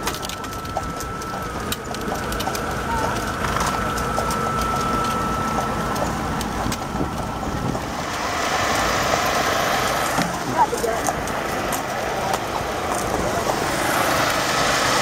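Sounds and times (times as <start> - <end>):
thin steady tone: 0.0 - 11.1
buggy wheels rolling: 0.0 - 15.0
horse hooves clopping on road: 0.0 - 15.0
wind buffeting microphone: 0.2 - 9.4.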